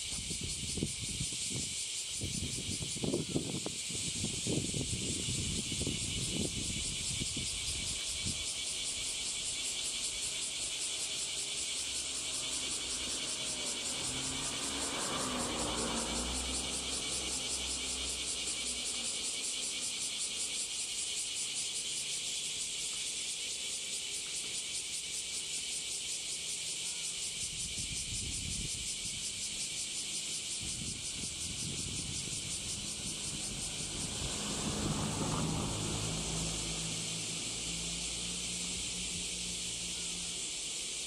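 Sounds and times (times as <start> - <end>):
cicadas buzzing: 0.0 - 41.0
low rumble of road traffic: 0.0 - 41.0
vehicle passing: 11.2 - 19.4, 29.2 - 40.6.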